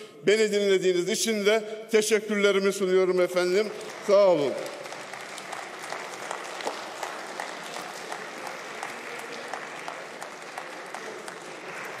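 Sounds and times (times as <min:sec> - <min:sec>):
crowd applauding: 0:03.4 - 0:12.0.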